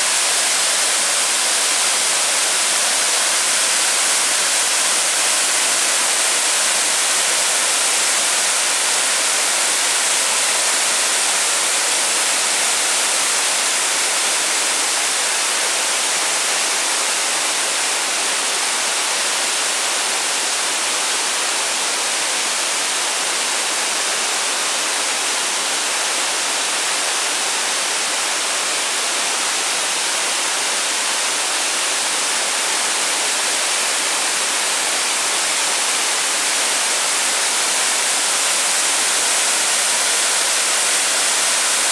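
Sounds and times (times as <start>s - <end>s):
waterfall rushing: 0.0s - 41.9s.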